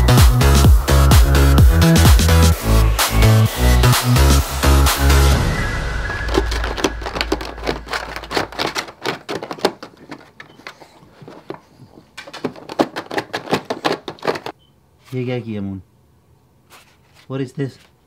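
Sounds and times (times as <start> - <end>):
background music: 0.0 - 8.7
plastic bag crinkling: 6.3 - 14.5.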